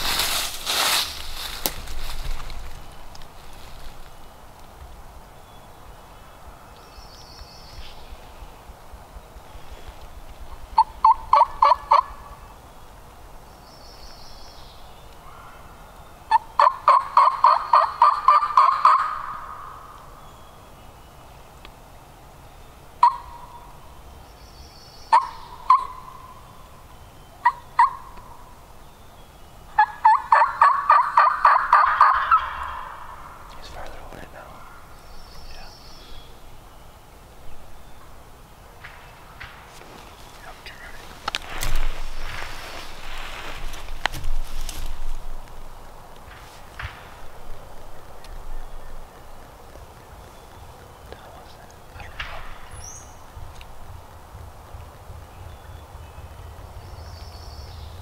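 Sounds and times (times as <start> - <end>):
turkey clucks: 10.8 - 12.2, 16.3 - 19.6, 23.0 - 23.4, 25.1 - 26.2, 27.4 - 28.2, 29.8 - 33.1
turkey yelping: 10.8 - 12.2, 16.3 - 19.6, 23.0 - 23.4, 25.1 - 26.2, 27.4 - 28.1, 29.8 - 33.1.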